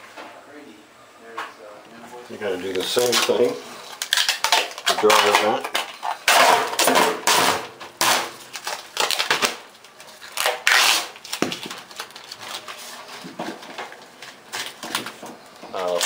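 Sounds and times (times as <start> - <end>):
plastic sheeting crinkling: 8.4 - 16.0.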